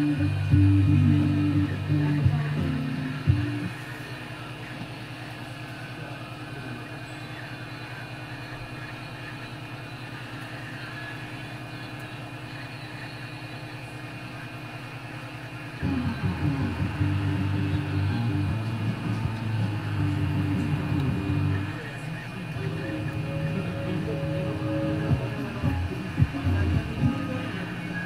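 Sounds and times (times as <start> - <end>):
music: 0.0 - 3.8, 15.8 - 21.7, 22.6 - 28.0.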